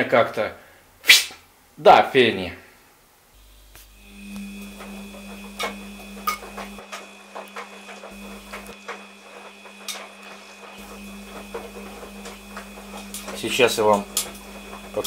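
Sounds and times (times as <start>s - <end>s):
steady mechanical hum: 3.1s - 15.0s.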